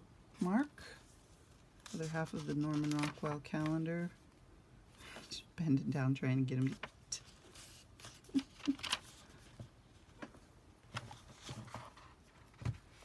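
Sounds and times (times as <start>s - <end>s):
paper pages rustling: 1.4s - 3.8s, 6.6s - 13.0s.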